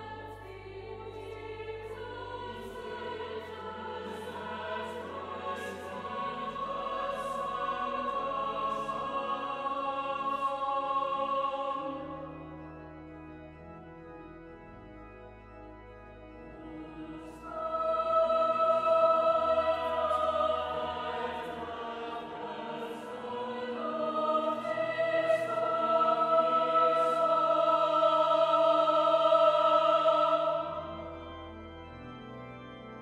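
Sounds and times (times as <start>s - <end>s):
choir singing sustained chords: 0.0s - 33.0s
organ playing: 0.0s - 33.0s.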